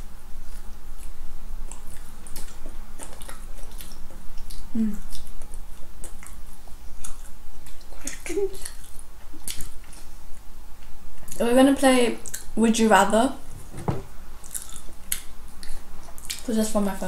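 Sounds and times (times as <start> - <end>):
chewing with wet mouth clicks: 1.0 - 11.4, 12.2 - 12.5, 14.4 - 16.5.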